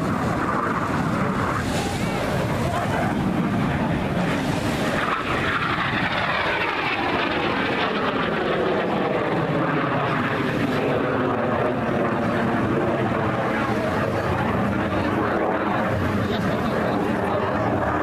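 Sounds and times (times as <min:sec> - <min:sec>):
jet engine passing and climbing: 0:00.0 - 0:18.0.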